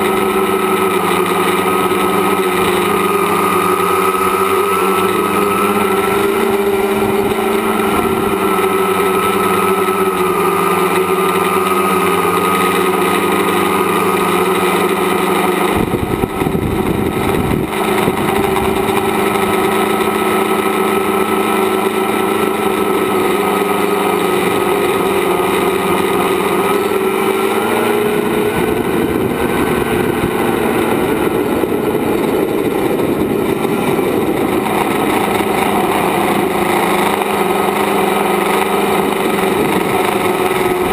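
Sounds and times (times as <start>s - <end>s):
drone motors and propellers whining: 0.0s - 40.9s
low rumbling: 0.0s - 40.9s.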